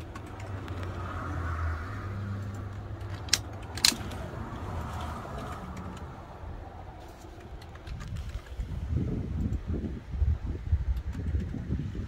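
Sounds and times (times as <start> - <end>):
sharp clicks: 0.0 - 1.0, 2.3 - 4.2, 10.9 - 11.8
engine and road drone: 0.0 - 12.0.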